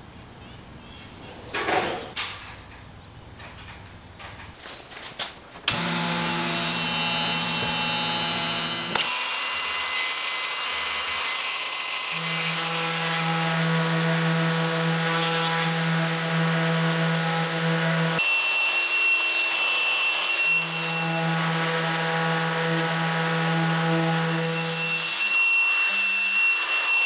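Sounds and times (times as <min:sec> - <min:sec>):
orbital sander on metal: 0:05.7 - 0:18.9, 0:19.5 - 0:27.0
angle grinder whine: 0:05.7 - 0:27.0.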